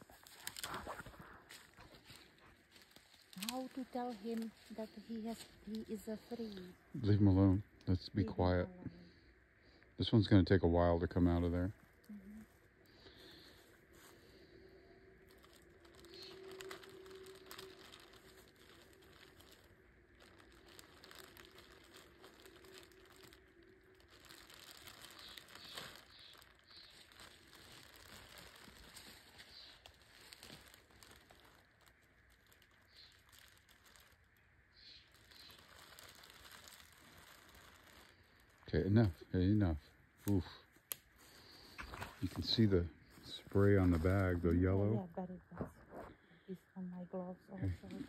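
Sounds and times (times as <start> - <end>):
plastic bag crinkling: 0.0 - 6.7, 12.1 - 38.7, 47.6 - 48.0.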